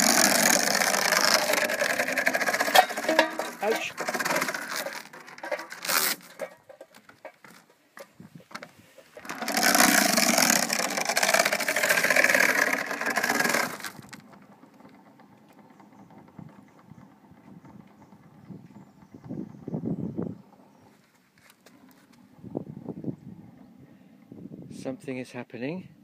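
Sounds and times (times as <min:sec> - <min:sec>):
chain scraping over bow: 0:00.0 - 0:07.7, 0:08.8 - 0:14.2
iron chain clattering: 0:00.1 - 0:07.4.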